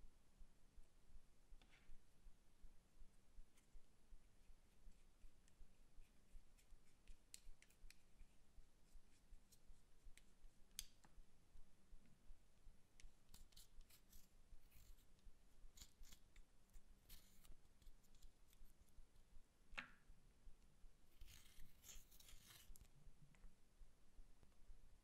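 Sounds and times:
spatula scraping powder: 0:13.3 - 0:18.9, 0:21.1 - 0:22.9.

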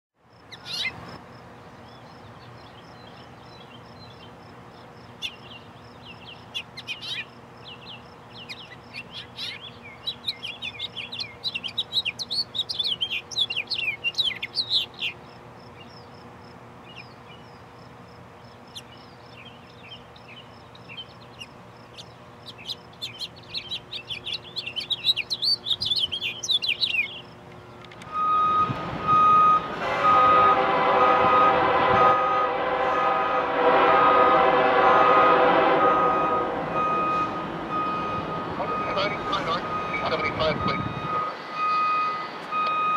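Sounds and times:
finch singing warbled chirps: 0:00.5 - 0:01.0, 0:05.2 - 0:15.2, 0:18.7 - 0:27.3
locomotive air horn: 0:28.1 - 0:42.0.

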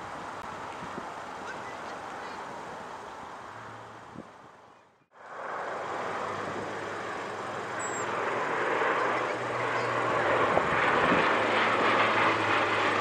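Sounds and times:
engine and air rush: 0:05.1 - 0:13.0
low propeller drone: 0:05.1 - 0:13.0.

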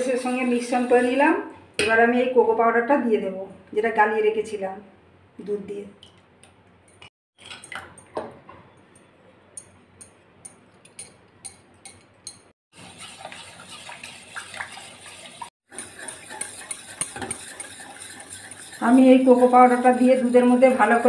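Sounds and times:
spoon scraping ceramic bowl: 0:10.9 - 0:21.0
spoon stirring milk in pan: 0:12.8 - 0:21.0.

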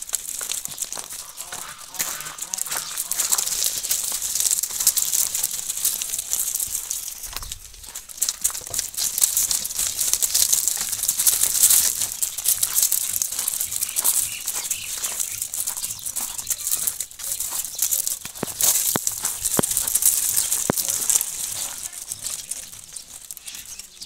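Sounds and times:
hooves crunching on gravel: 0:00.0 - 0:24.0.

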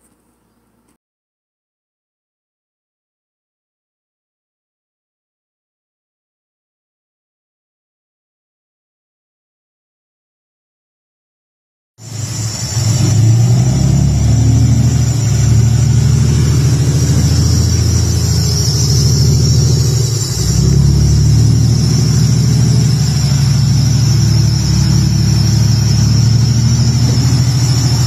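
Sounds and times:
vehicle engine droning: 0:12.0 - 0:28.0.

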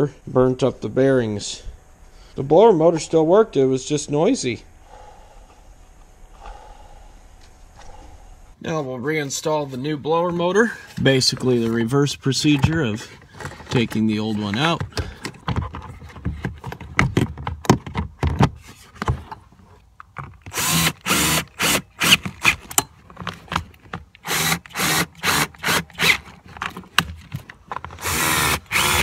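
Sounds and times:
power driver driving screws: 0:20.5 - 0:22.8, 0:24.2 - 0:26.8, 0:27.9 - 0:29.0.

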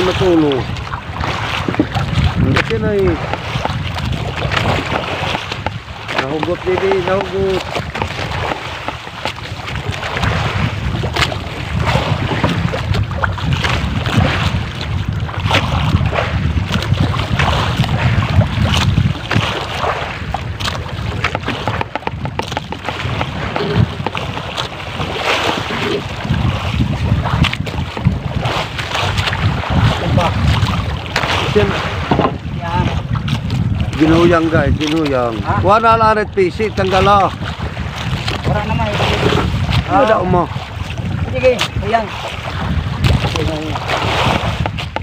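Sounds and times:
boat knocks: 0:00.0 - 0:45.0
water sloshing against boat hull: 0:00.0 - 0:45.0
wind buffeting microphone: 0:00.0 - 0:45.0.

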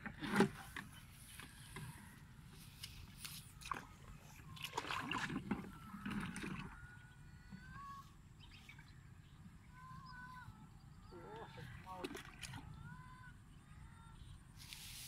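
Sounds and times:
pond water sloshing and splashing: 0:00.0 - 0:10.0, 0:10.9 - 0:12.9.

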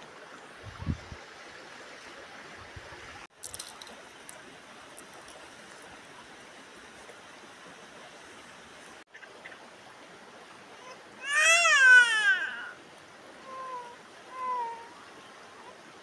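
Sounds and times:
stream rushing over rocks: 0:00.0 - 0:16.0
light clicks and rustles: 0:03.4 - 0:06.0.

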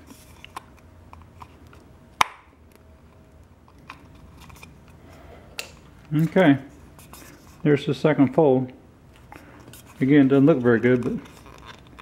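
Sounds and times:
metal crinkling and scraping: 0:09.2 - 0:12.0.

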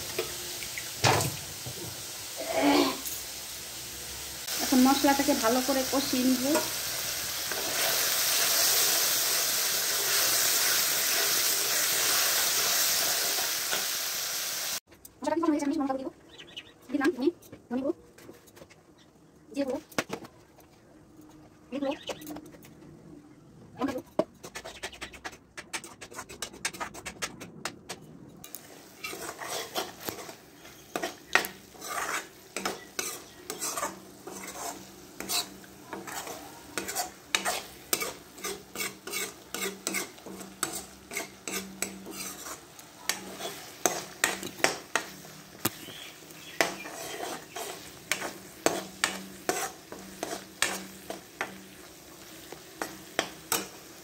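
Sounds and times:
soft sizzle: 0:00.0 - 0:19.8, 0:28.3 - 0:54.0
metal spatula scraping a pan: 0:05.0 - 0:14.0, 0:28.9 - 0:45.4, 0:46.2 - 0:54.0.

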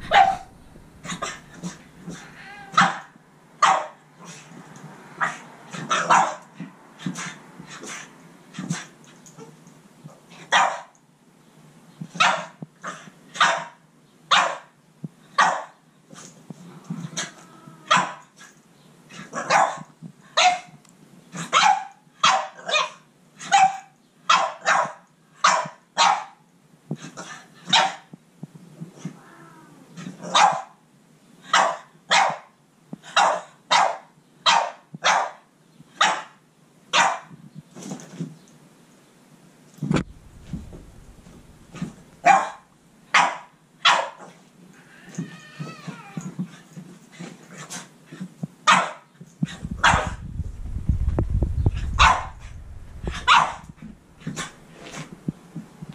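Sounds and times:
dog barking: 0:00.0 - 0:04.0, 0:05.2 - 0:06.5, 0:10.5 - 0:10.9, 0:12.2 - 0:14.7, 0:15.4 - 0:15.8, 0:17.2 - 0:18.3, 0:19.3 - 0:20.8, 0:21.4 - 0:26.4, 0:27.7 - 0:28.1, 0:30.2 - 0:30.8, 0:31.5 - 0:32.5, 0:33.1 - 0:37.3, 0:40.4 - 0:44.3, 0:48.6 - 0:49.1, 0:49.8 - 0:50.2, 0:52.0 - 0:54.6.

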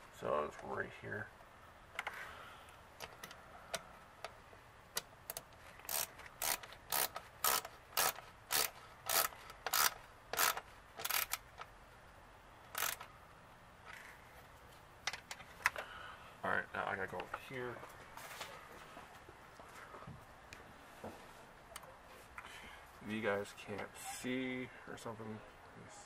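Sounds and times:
socket ratchet clicking: 0:03.0 - 0:11.7, 0:12.7 - 0:13.1.

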